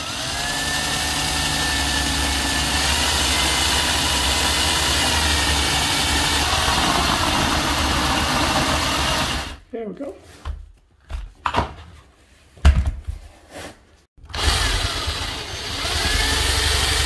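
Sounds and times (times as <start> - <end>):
cordless drill cutting metal: 0.0 - 9.6, 14.2 - 17.0.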